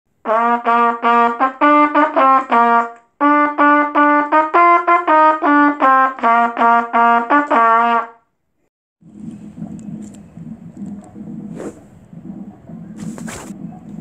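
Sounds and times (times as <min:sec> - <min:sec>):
trumpet playing a tune: 0:00.2 - 0:08.3.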